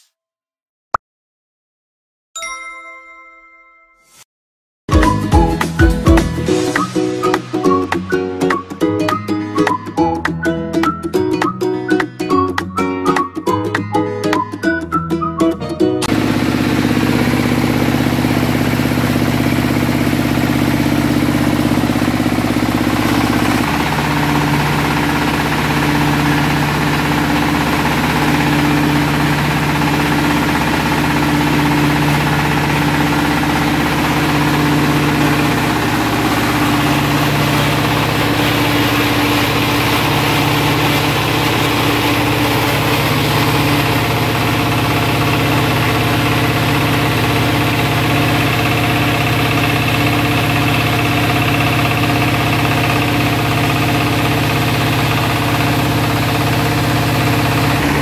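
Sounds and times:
diesel engine running: 16.0 - 58.0
rice milling machine: 16.0 - 58.0.

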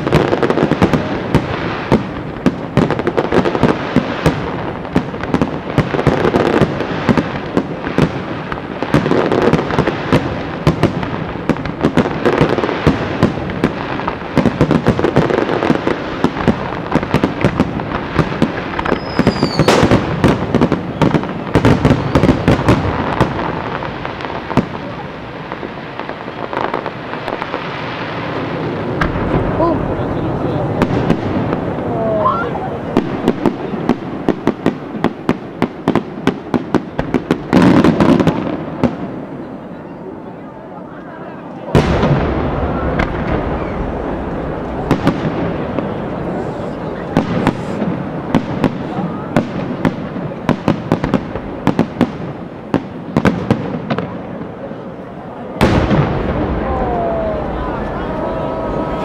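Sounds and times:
fireworks bursts and crackling: 0.0 - 59.0
firework whistle: 18.8 - 20.0, 32.1 - 32.7, 42.6 - 44.1, 46.3 - 47.9.

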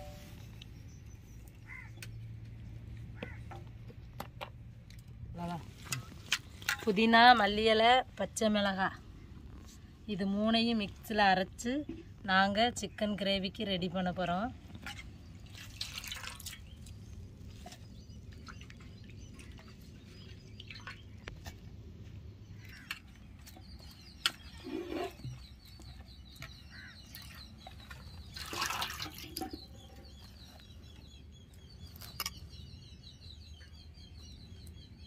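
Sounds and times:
birds chirping: 0.0 - 3.8, 14.6 - 35.0
water splashes and drips: 14.8 - 21.7, 26.4 - 30.1.

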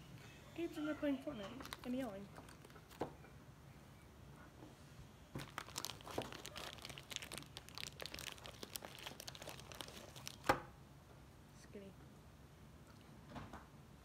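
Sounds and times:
plastic wrapper crinkling and tearing: 1.6 - 3.0, 5.4 - 10.6.

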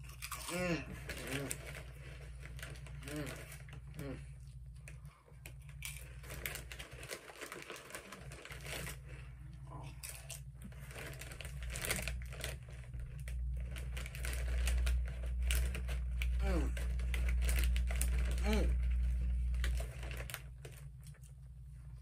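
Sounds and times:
chips crunching between teeth: 0.0 - 9.1, 9.8 - 21.4
plastic bag crinkling: 0.0 - 22.0
low rumble: 8.3 - 22.0.

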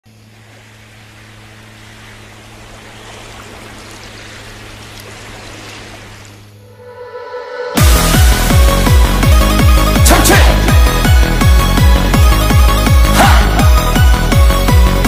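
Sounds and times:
sea waves washing on beach: 0.1 - 6.6
low hum: 0.1 - 10.0.

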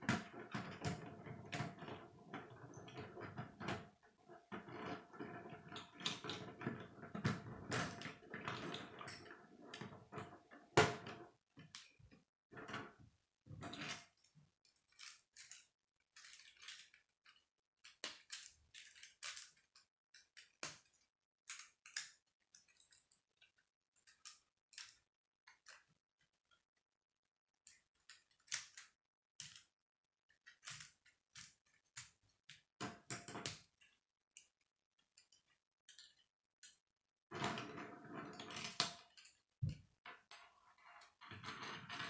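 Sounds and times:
plastic pieces clicking and rattling: 13.8 - 26.6, 27.6 - 29.7, 30.3 - 36.8.

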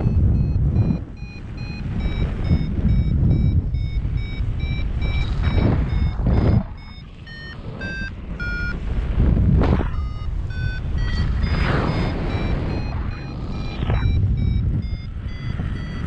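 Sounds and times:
variometer beeping: 0.0 - 16.0
wind buffeting microphone: 0.0 - 16.0.

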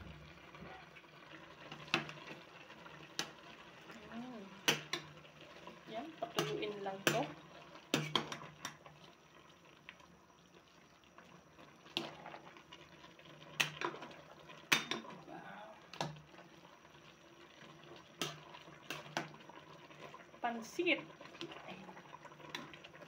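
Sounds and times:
faint simmering: 0.0 - 23.0
spatula scraping pot: 6.2 - 8.8.

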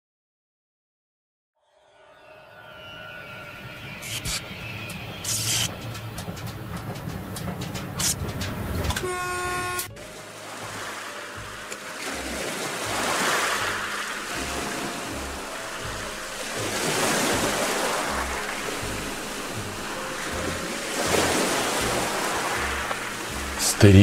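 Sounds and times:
sea waves breaking: 2.8 - 24.0
background music with low beat: 3.9 - 24.0
train horn blast: 8.9 - 23.7.

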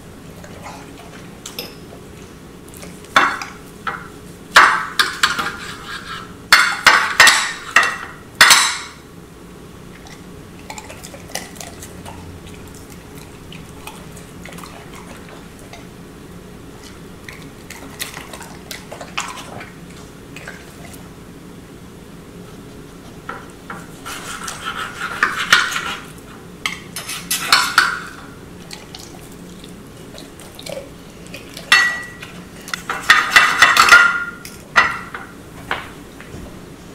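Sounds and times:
knife scraping on a plate: 5.0 - 6.4, 23.9 - 26.2, 27.0 - 28.1
dog licking and chewing: 9.9 - 16.0, 16.7 - 21.1, 28.6 - 32.9.

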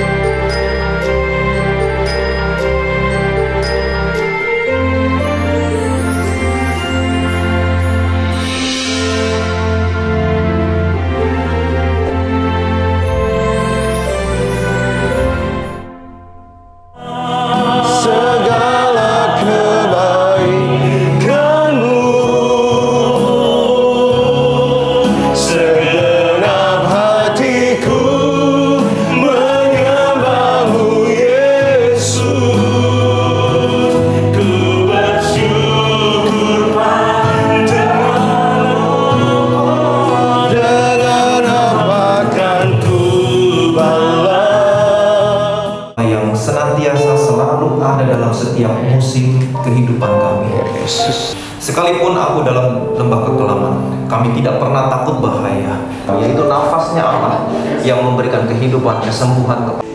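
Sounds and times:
instrumental accompaniment: 0.0 - 59.9
group singing worship song: 17.0 - 46.0.

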